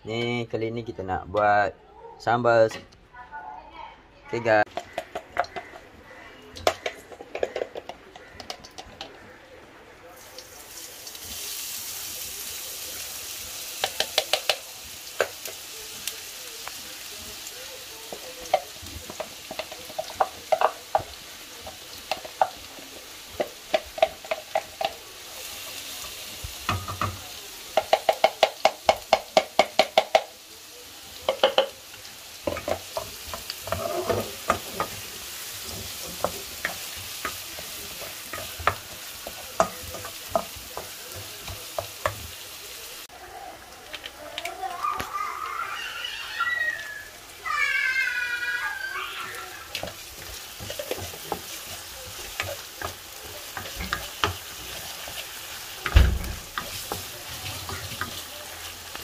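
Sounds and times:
onions sizzling in oil: 4.5s - 59.0s
spatula knocking and scraping wok: 4.7s - 9.3s, 13.7s - 15.6s, 18.0s - 30.4s, 31.2s - 42.4s, 49.7s - 59.0s.

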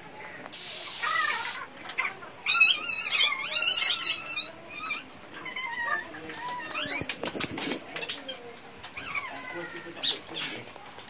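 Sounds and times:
short loud hiss: 0.5s - 1.6s.

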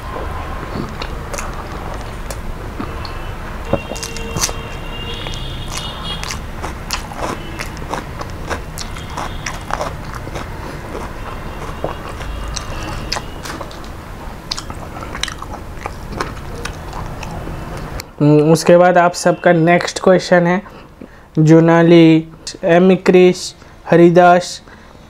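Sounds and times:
chewing and biting food: 0.0s - 18.1s.

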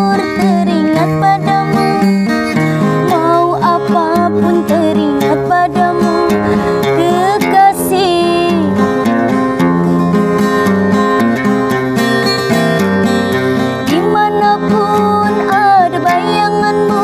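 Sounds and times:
woman singing: 0.0s - 9.0s, 13.8s - 17.0s
classical guitar playing: 0.0s - 17.0s.

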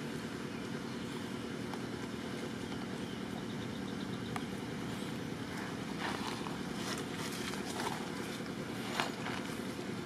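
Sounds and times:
distant engine rumble: 0.0s - 10.0s
dry leaves rustling: 5.0s - 9.9s.

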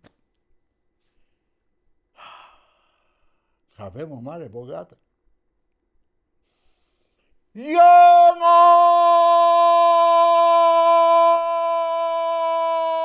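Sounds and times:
man's loud long call: 7.6s - 13.0s.

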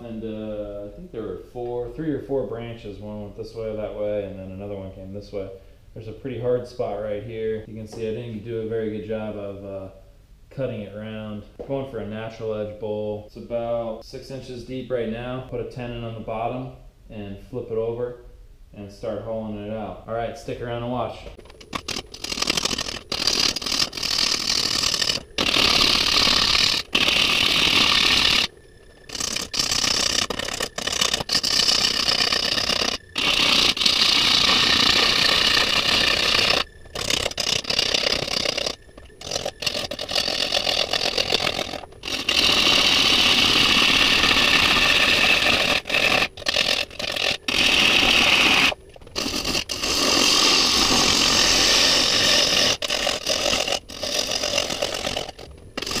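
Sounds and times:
wood lathe cutting: 21.4s - 56.0s.

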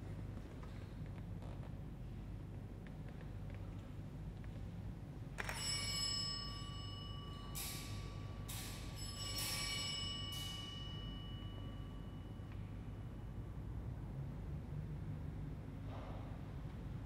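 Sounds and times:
altar bell ringing: 5.4s - 13.0s.

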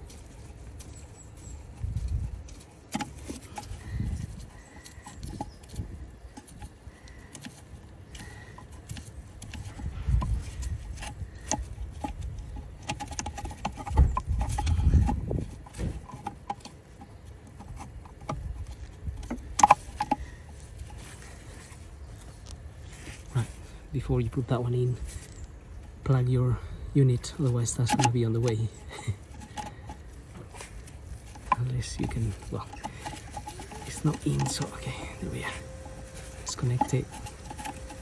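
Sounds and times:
gloved hands handling metal parts: 0.0s - 38.0s.

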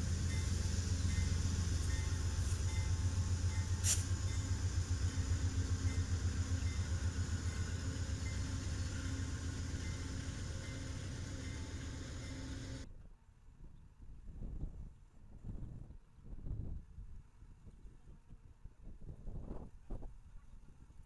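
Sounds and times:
diesel locomotive engine drone: 0.0s - 12.9s.

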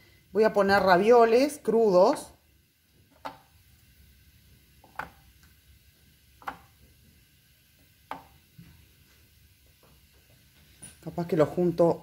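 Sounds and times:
ravioli tapping on baking pan: 8.1s - 8.3s.

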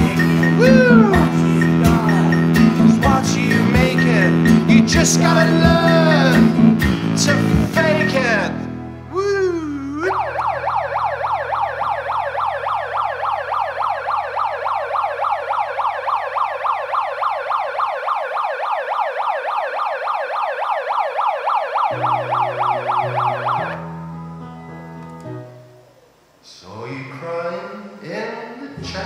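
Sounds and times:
megaphone siren yelping: 0.5s - 1.6s, 9.4s - 23.8s.

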